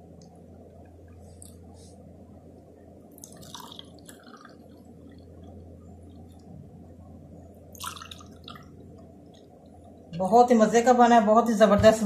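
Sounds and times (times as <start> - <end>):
steady low hum: 0.0 - 12.0
liquid pouring and dripping: 3.1 - 5.2, 7.7 - 9.5.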